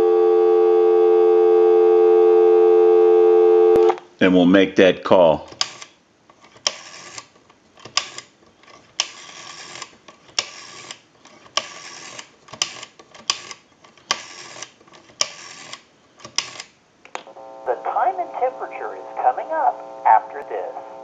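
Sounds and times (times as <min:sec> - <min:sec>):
rotary dial clicking and returning: 0:05.6 - 0:16.7.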